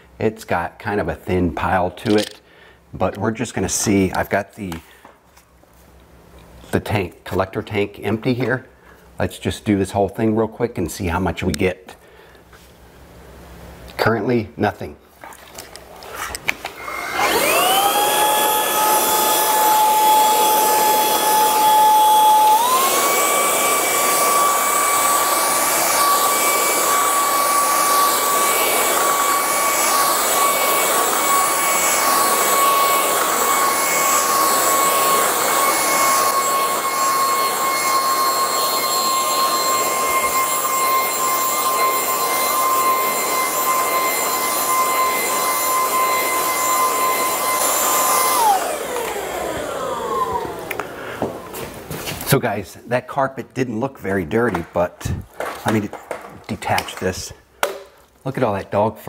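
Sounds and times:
stick vacuum motor whining: 16.7s - 52.3s.

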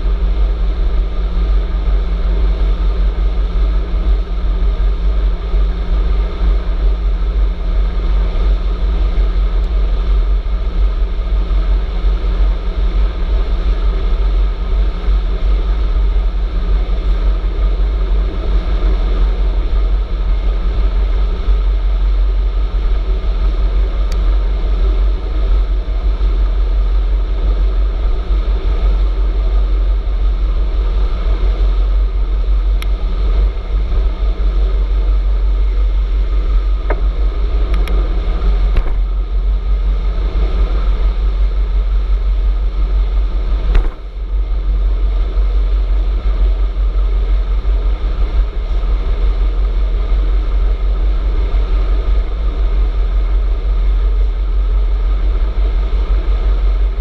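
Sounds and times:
wind rushing over microphone: 0.0s - 57.0s
road noise: 29.0s - 47.8s.

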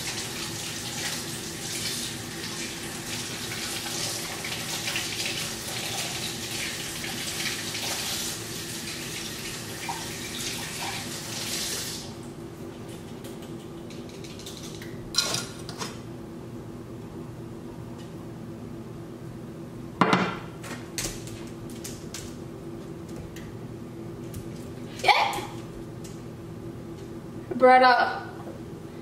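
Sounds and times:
faucet running: 0.0s - 12.1s
steady low hum: 12.0s - 29.0s.

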